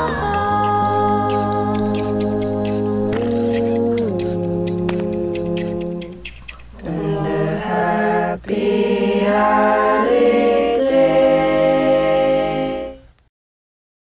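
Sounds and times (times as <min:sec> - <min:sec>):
voices singing a cappella harmony: 0:00.0 - 0:13.2.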